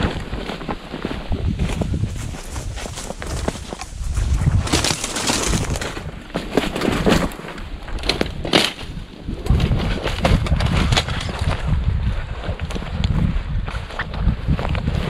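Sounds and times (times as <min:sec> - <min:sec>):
footsteps crunching through snow: 0:00.0 - 0:09.0
wind buffeting microphone: 0:00.0 - 0:15.0
twigs snapping and scraping: 0:01.6 - 0:11.7.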